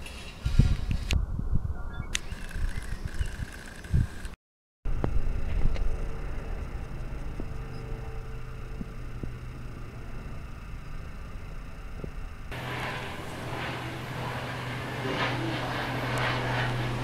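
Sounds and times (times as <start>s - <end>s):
low rumble: 4.9s - 17.0s.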